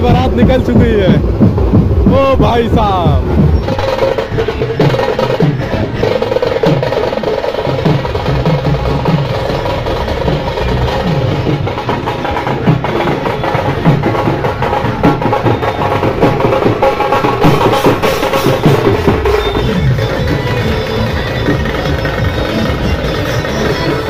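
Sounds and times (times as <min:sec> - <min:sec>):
fast procession drumming: 0:00.0 - 0:24.0.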